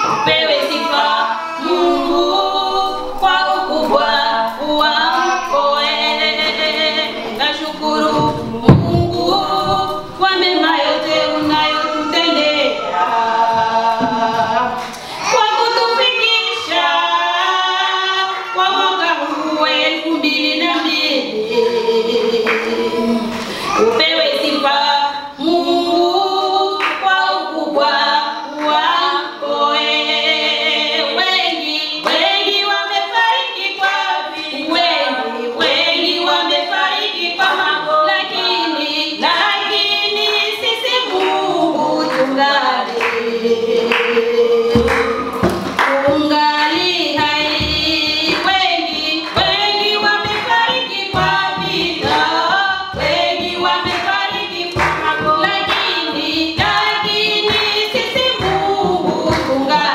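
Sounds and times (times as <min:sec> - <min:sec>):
voices singing worship song: 0:00.0 - 0:59.9
low rhythmic thumps: 0:01.8 - 0:15.0, 0:40.6 - 0:59.9.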